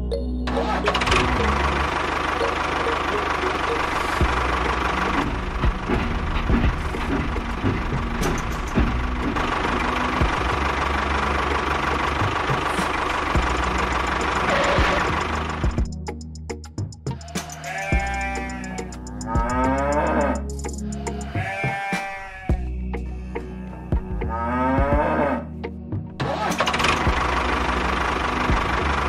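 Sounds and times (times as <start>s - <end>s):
rapid rattling clatter: 3.0s - 15.9s.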